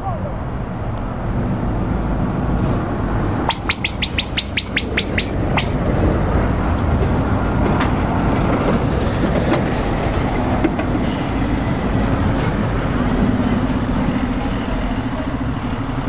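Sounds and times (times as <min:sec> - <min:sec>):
truck diesel engines rumbling: 0:00.0 - 0:16.0
high falling chirps: 0:03.4 - 0:05.9.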